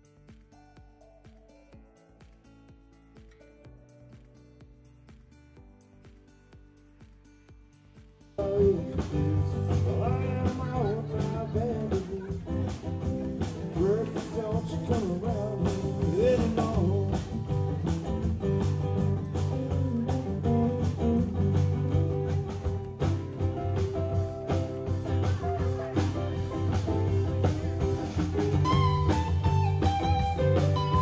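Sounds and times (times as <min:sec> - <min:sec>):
drum kit: 0:00.0 - 0:31.0
guitars: 0:00.0 - 0:31.0
person singing: 0:08.4 - 0:12.6, 0:13.7 - 0:17.6.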